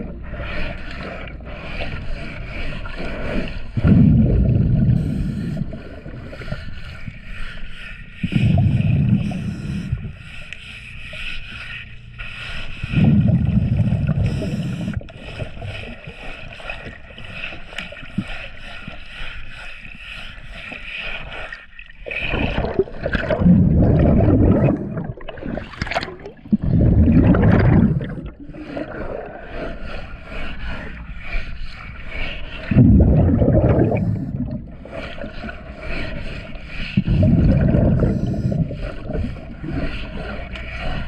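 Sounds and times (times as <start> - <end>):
exhaled bubbles underwater: 0.0 - 6.8, 8.2 - 10.2, 12.8 - 18.3, 21.8 - 30.0, 32.3 - 41.0.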